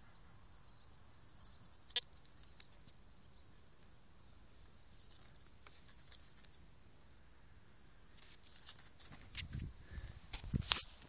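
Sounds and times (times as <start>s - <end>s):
rustling in dry straw: 8.1s - 11.0s.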